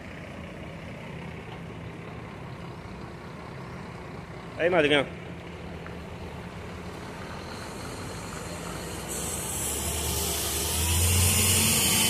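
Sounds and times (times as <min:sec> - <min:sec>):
bus diesel engine hum: 0:00.0 - 0:12.0
strong hiss: 0:07.6 - 0:12.0.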